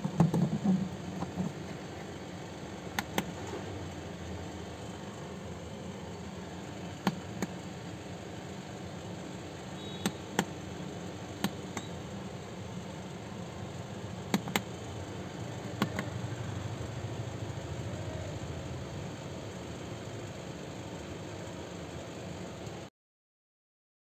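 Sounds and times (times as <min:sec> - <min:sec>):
plastic fan clicks and knocks: 0:00.0 - 0:01.6.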